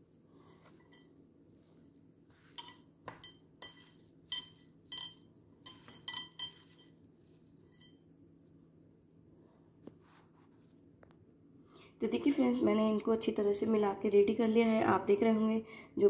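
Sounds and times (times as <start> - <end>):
glass bowl clinking: 0.7 - 1.7, 2.3 - 8.0.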